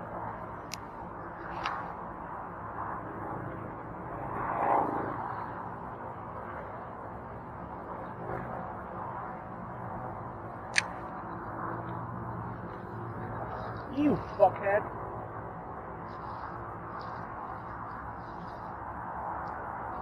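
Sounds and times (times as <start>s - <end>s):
distant road traffic hum: 0.0s - 20.0s
short clicks: 10.7s - 11.0s.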